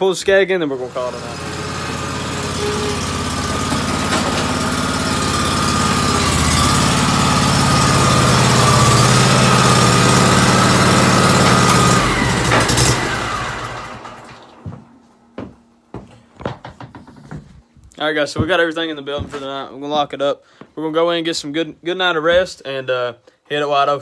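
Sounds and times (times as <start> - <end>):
mower engine running: 0.6 - 14.8.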